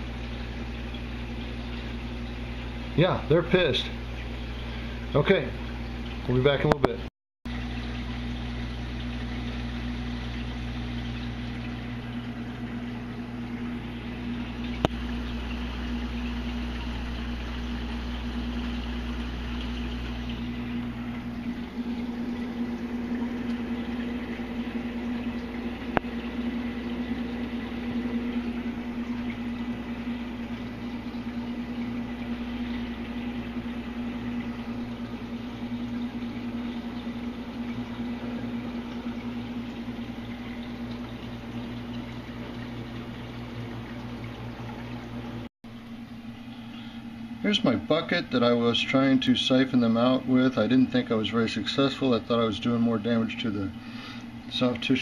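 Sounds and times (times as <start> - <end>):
aquarium pumps humming: 0.0 - 55.0.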